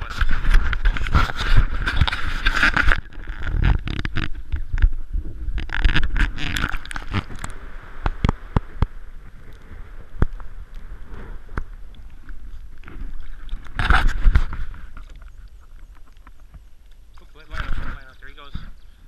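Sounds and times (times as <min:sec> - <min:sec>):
wind: 0:00.0 - 0:19.0
sharp underwater clicks: 0:00.2 - 0:10.9, 0:11.5 - 0:17.8
water splashing: 0:05.5 - 0:18.2.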